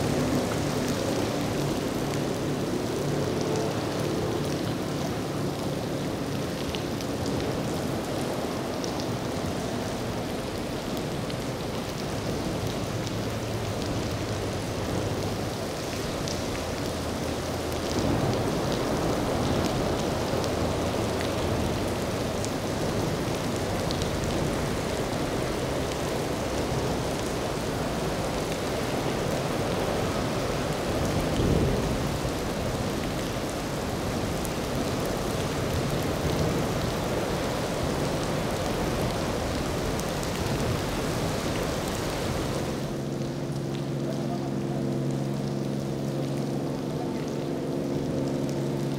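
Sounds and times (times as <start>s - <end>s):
heavy rain hissing: 14.6s - 47.3s.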